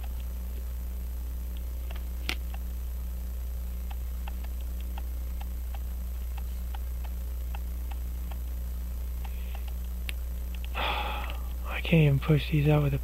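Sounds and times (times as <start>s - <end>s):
steady low hum: 0.0s - 13.0s
faint regular ticking: 1.5s - 2.7s, 3.8s - 11.6s
sharp click: 3.9s - 5.8s.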